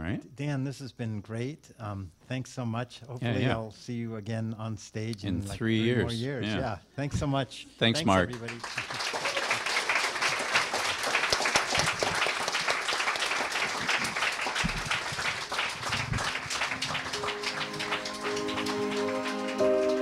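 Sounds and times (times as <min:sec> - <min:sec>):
audience applauding: 0:08.0 - 0:20.0
low thumps: 0:14.6 - 0:15.1
music: 0:16.5 - 0:20.0.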